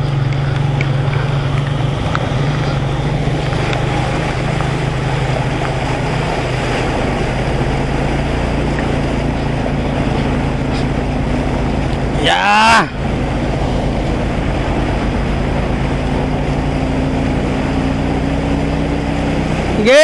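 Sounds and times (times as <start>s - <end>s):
small motorcycle engine running: 0.0s - 12.2s
wheel splashing water: 0.0s - 20.0s.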